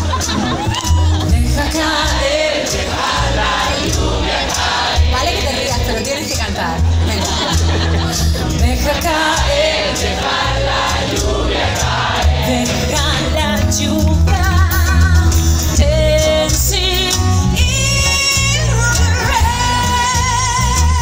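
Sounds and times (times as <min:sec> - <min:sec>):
live pop band playing: 0:00.0 - 0:21.0
woman singing: 0:01.1 - 0:02.5, 0:08.5 - 0:09.7, 0:12.4 - 0:21.0.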